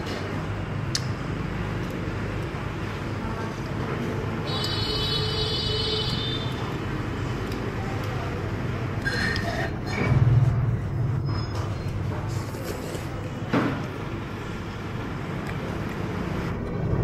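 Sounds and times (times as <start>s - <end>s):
street traffic rumble: 0.0s - 17.0s.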